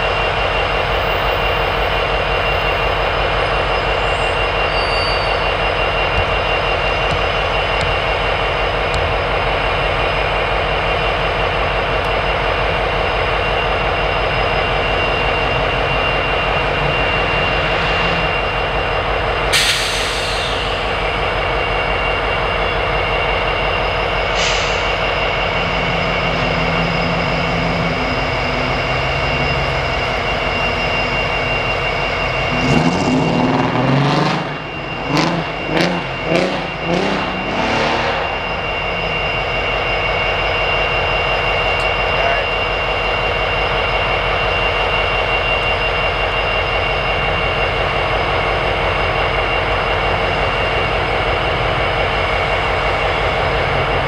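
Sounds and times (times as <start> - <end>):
diesel locomotive engines running: 0.0 - 54.0
air hiss: 19.5 - 21.0.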